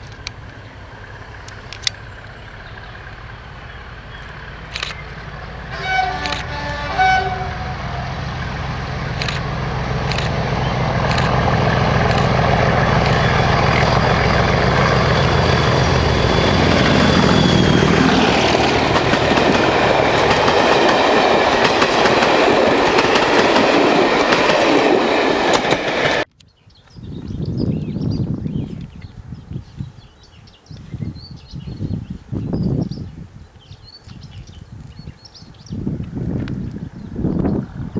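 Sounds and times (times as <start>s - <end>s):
diesel locomotive engine: 0.0s - 26.3s
coaches clattering over rails: 8.3s - 26.3s.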